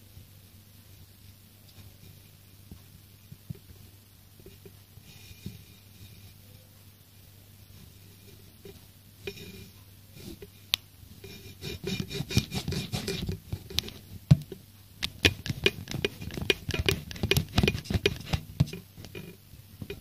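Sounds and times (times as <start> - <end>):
tapping and scratching clicks: 10.7 - 20.0.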